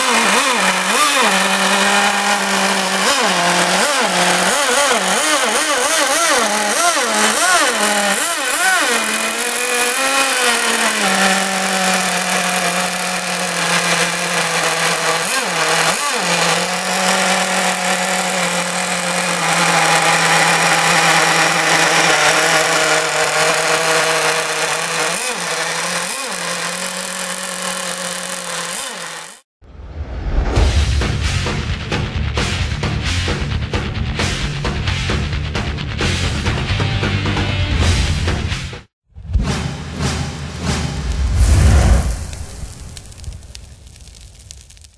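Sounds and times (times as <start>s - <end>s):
model boat engine running: 0.0s - 29.4s.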